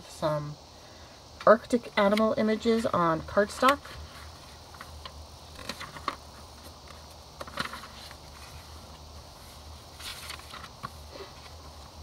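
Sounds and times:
low steady hum: 0.0 - 12.0
paper pages rustling: 5.5 - 12.0.

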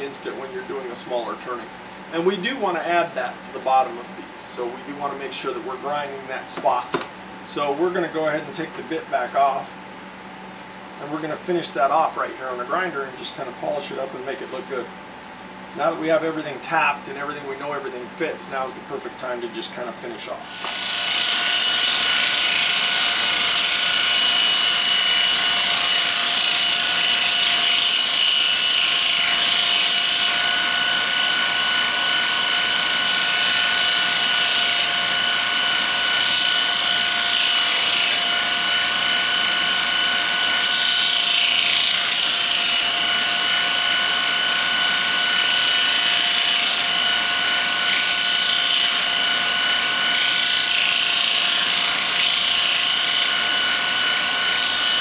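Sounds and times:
bench grinder grinding metal: 20.5 - 55.0.

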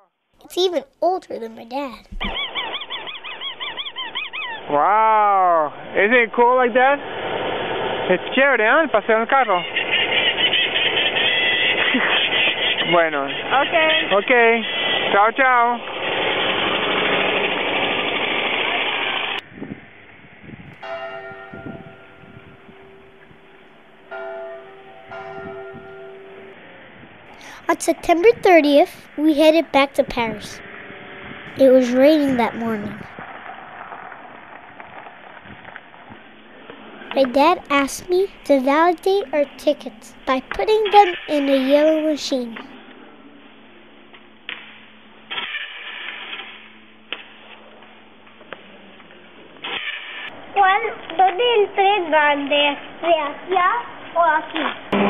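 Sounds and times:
bell ringing: 20.8 - 26.6.

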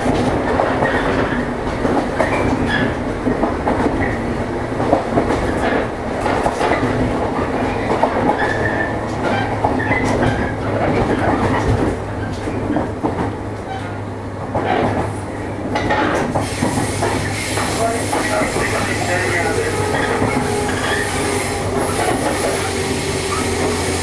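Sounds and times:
wheels clicking over rail joints: 0.0 - 24.0
electric train running: 15.8 - 24.0.

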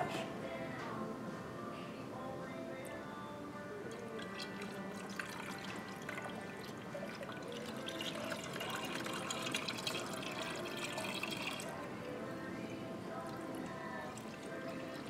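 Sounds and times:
liquid pouring into tank: 3.9 - 11.8.

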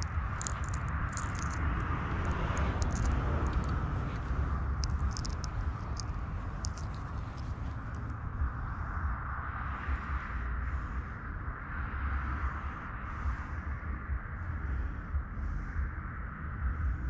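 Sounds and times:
faint high ticks: 0.0 - 8.1
wind buffeting microphone: 0.0 - 9.2.

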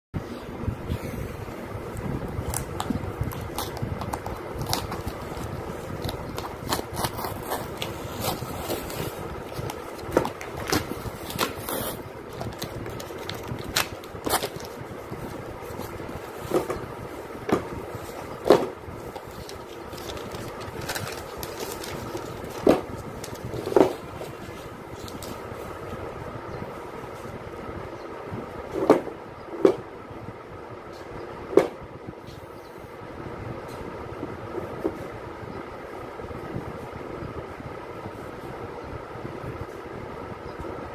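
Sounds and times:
cardboard scraping and rustling: 2.4 - 25.8.

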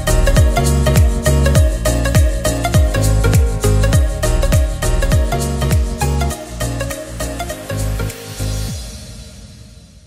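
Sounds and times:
deep kick drum: 0.0 - 6.0
upbeat background music: 0.0 - 9.3.

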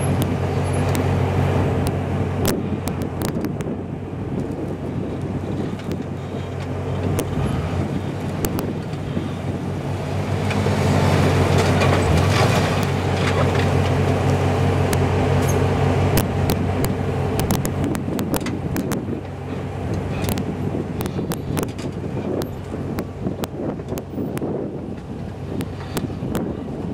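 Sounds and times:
off-road vehicle engine under load: 0.0 - 26.9
sharp clicks and knocks: 8.3 - 9.0, 16.2 - 26.5.

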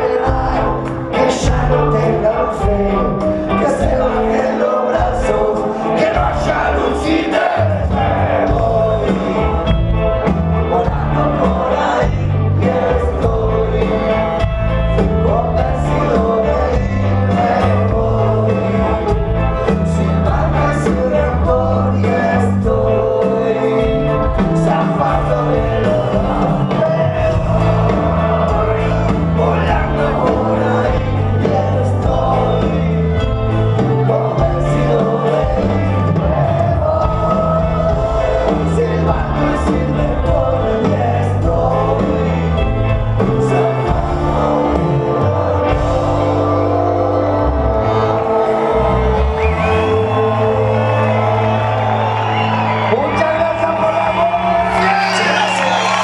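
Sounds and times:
person singing: 0.0 - 56.0
rock band playing live: 0.0 - 56.0.

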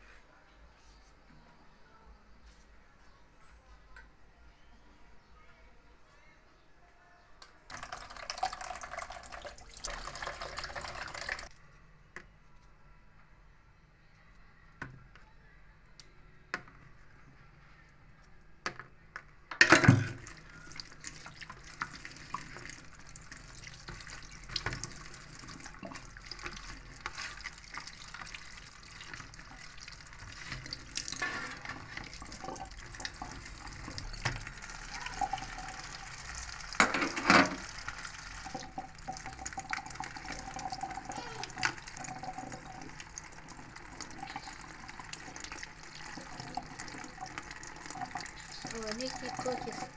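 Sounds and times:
tap water running into sink: 7.7 - 11.5, 19.6 - 49.9
clattering in plastic colander: 36.8 - 37.8.

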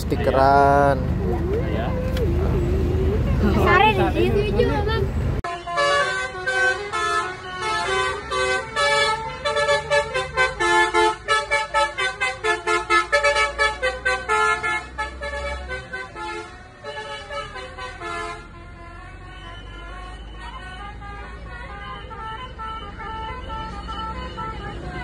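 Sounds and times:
low engine rumble: 0.0 - 5.4
bus horn tooting a tune: 0.0 - 25.0.

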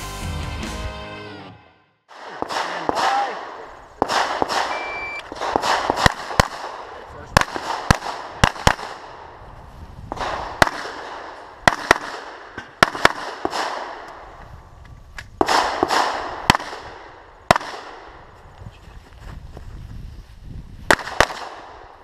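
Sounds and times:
pistol shots: 2.1 - 9.2, 10.1 - 14.2, 15.4 - 18.2, 20.9 - 21.8.

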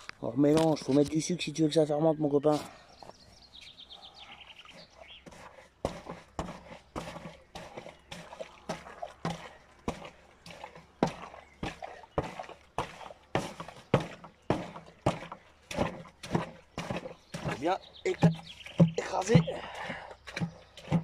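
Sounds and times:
wooden post pounding wet fruit: 5.1 - 21.0.

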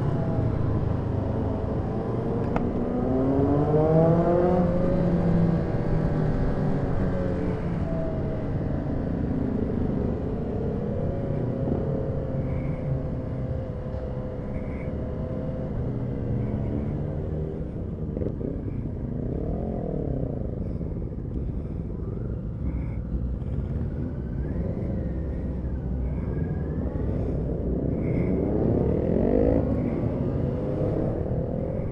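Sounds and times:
motorcycle engine revving: 26.1 - 31.9.

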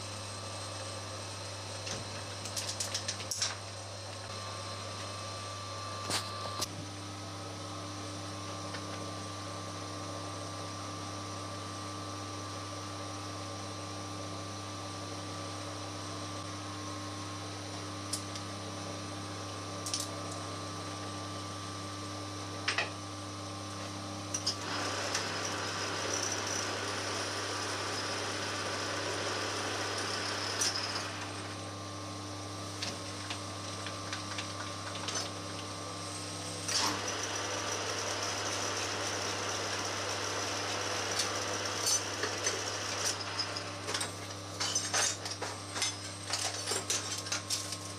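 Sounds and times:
drill cutting into metal: 24.6 - 31.4
metal lathe running: 24.6 - 31.7.

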